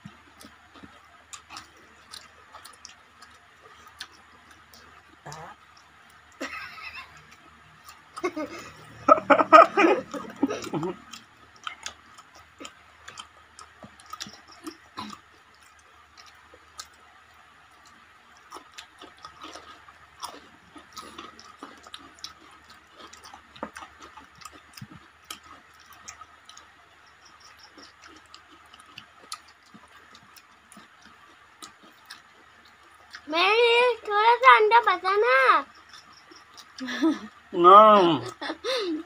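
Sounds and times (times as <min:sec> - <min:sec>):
soft chewing: 0:00.0 - 0:33.3, 0:35.6 - 0:37.5
wet mouth clicks: 0:03.9 - 0:05.9.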